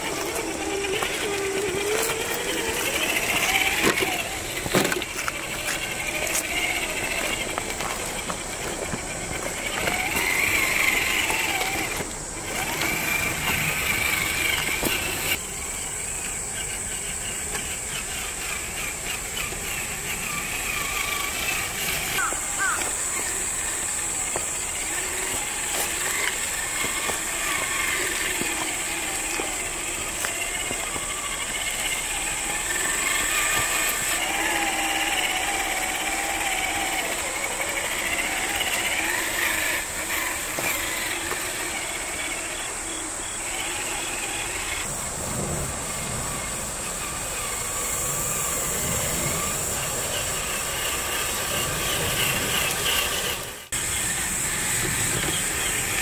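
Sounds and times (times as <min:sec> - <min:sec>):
electric motor and drivetrain whining: 0:00.0 - 0:56.0
steady high-pitched hiss: 0:00.0 - 0:56.0.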